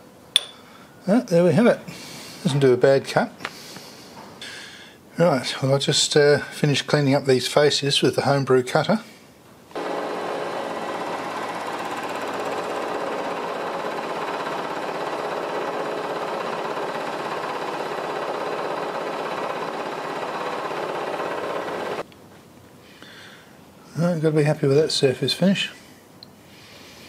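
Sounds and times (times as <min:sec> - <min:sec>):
milling machine cutting metal: 0:09.8 - 0:22.0.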